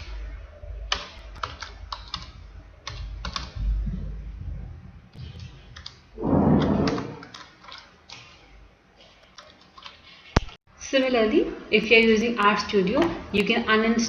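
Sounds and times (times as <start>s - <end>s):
keyboard typing: 0.9s - 3.6s, 5.7s - 8.3s, 9.2s - 10.5s
brief low rush of noise: 6.2s - 7.2s.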